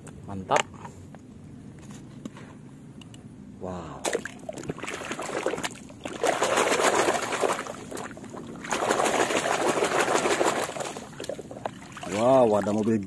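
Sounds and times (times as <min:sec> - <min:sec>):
water splashing in a plastic basin: 0:04.0 - 0:13.0.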